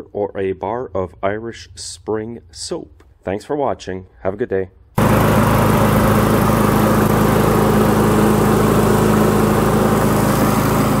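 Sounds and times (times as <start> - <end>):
lawn mower engine running: 5.0 - 11.0.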